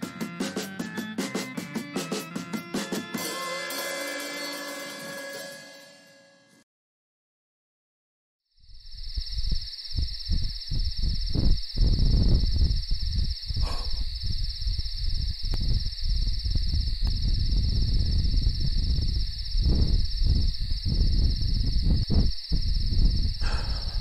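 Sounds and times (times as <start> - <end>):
crickets chirping: 8.5 - 24.0
wind buffeting microphone: 8.8 - 24.0.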